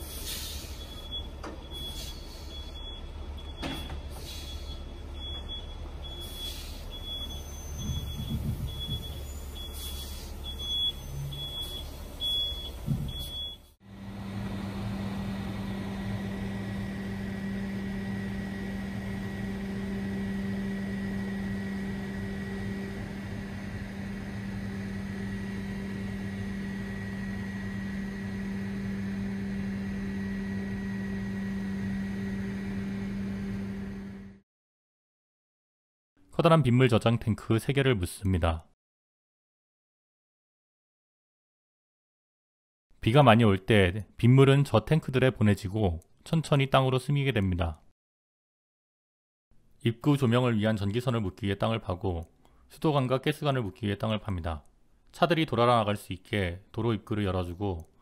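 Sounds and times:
diesel truck engine rumbling: 0:00.0 - 0:29.4
crane truck engine humming: 0:00.0 - 0:34.4
reversing alarm beeping: 0:00.6 - 0:13.8.

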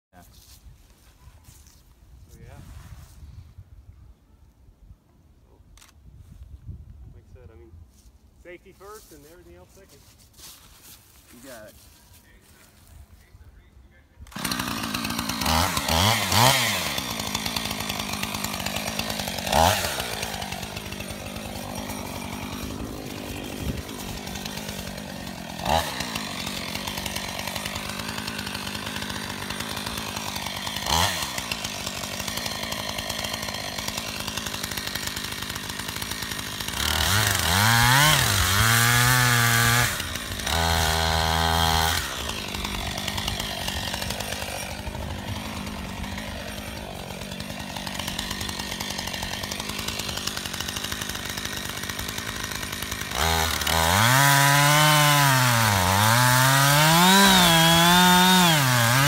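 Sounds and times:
chainsaw cutting tree trunk: 0:14.2 - 0:59.0
chainsaw revving: 0:14.2 - 0:59.0.

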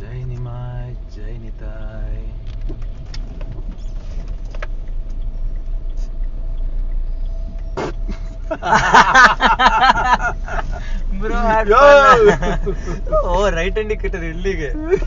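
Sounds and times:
road and engine rumble in car: 0:00.0 - 0:15.0
person speaking loudly: 0:11.1 - 0:14.8.

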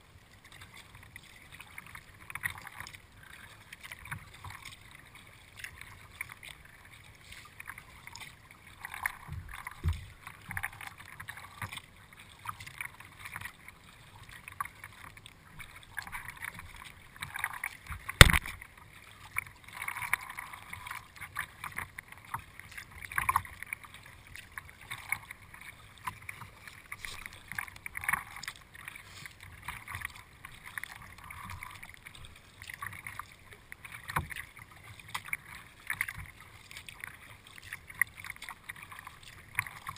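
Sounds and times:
water lapping at hull: 0:00.0 - 0:39.9
paddle splashing in water: 0:00.2 - 0:39.9
sharp knock: 0:18.2 - 0:18.5.

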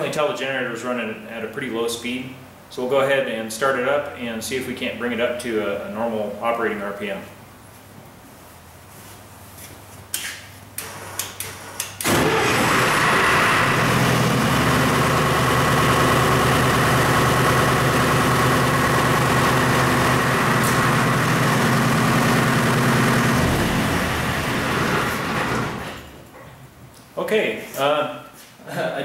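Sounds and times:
diesel generator engine running: 0:12.0 - 0:26.3.

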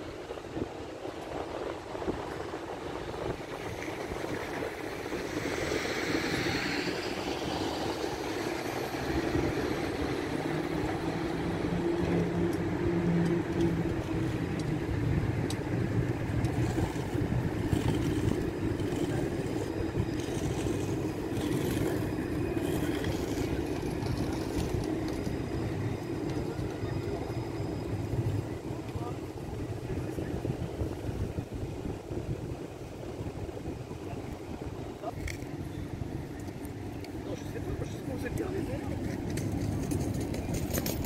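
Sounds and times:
tram running hum: 0:00.0 - 0:41.0
rising whine: 0:01.7 - 0:30.5.

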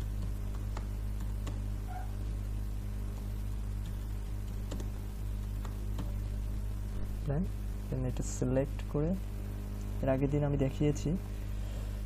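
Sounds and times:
low electrical hum: 0:00.0 - 0:12.0
computer mouse clicks: 0:03.1 - 0:05.0.

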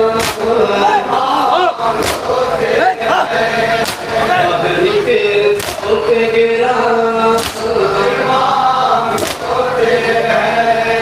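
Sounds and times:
men chanting in unison: 0:00.0 - 0:11.0
chest-beating slaps: 0:00.2 - 0:00.5, 0:02.0 - 0:02.3, 0:03.8 - 0:04.1, 0:05.6 - 0:05.9, 0:07.4 - 0:07.7, 0:09.2 - 0:09.5.

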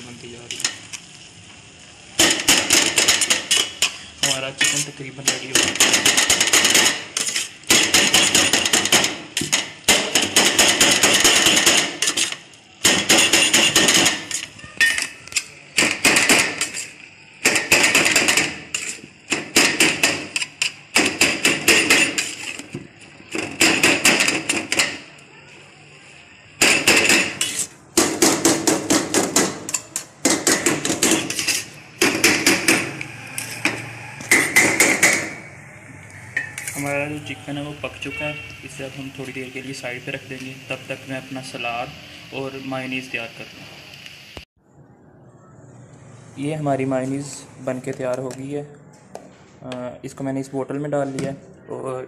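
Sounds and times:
metal spoon scraping steel pan: 0:03.0 - 0:05.4, 0:06.0 - 0:09.6, 0:13.0 - 0:15.6, 0:16.5 - 0:17.0, 0:17.8 - 0:19.2, 0:21.6 - 0:22.7, 0:27.0 - 0:27.8, 0:30.8 - 0:31.8, 0:33.0 - 0:35.2, 0:36.3 - 0:37.0.

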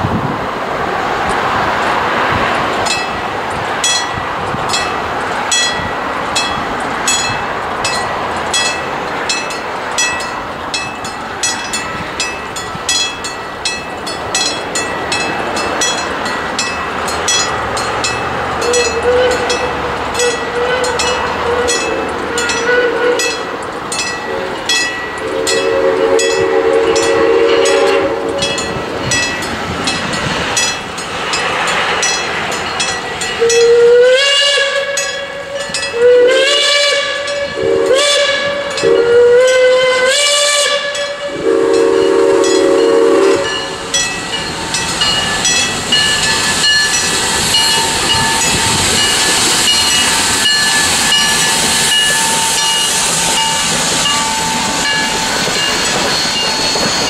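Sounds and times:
steam engine working: 0:00.0 - 0:57.0
locomotive bell ringing: 0:02.6 - 0:57.0
steam whistle blasts: 0:18.6 - 0:23.5, 0:25.2 - 0:28.6, 0:33.4 - 0:43.8, 0:47.1 - 0:57.0.

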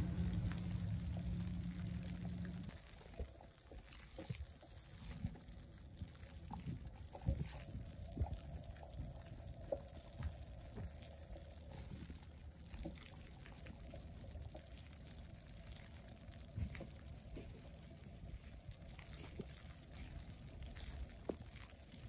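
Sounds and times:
faint low street rumble: 0:00.0 - 0:22.0.

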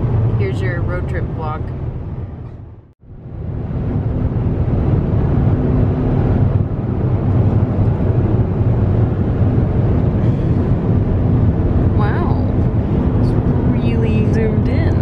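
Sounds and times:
road and engine rumble inside car: 0:00.0 - 0:15.0.

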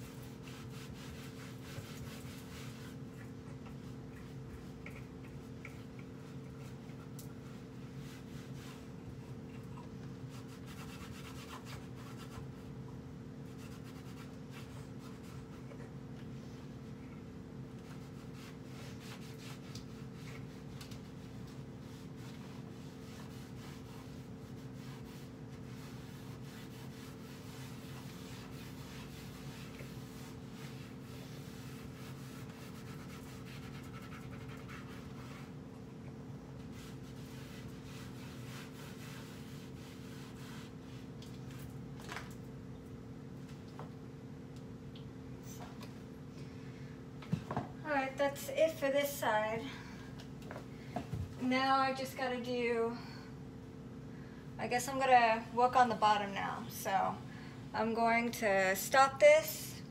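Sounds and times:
steady low hum: 0:00.0 - 0:59.9
cloth rubbing on wooden cabinet: 0:07.4 - 0:09.4, 0:17.8 - 0:35.5, 0:36.7 - 0:41.6.

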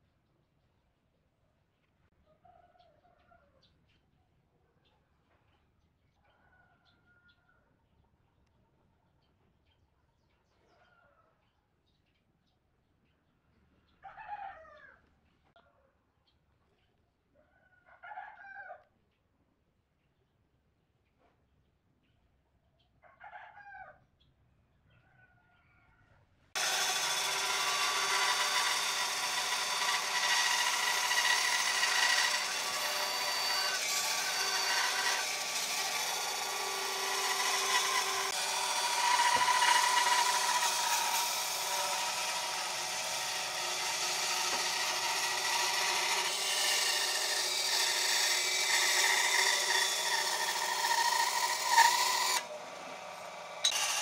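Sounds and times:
power tool whining: 0:26.6 - 0:54.0.

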